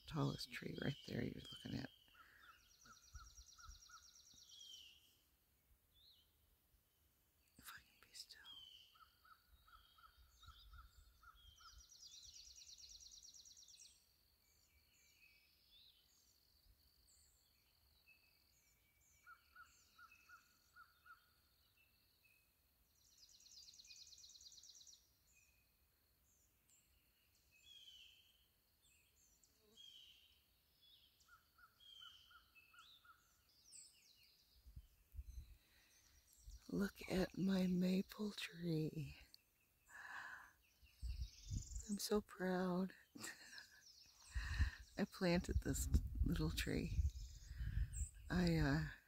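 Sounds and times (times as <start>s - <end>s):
faint birdsong: 0.0s - 49.0s
lower repeated bird notes: 26.2s - 49.0s.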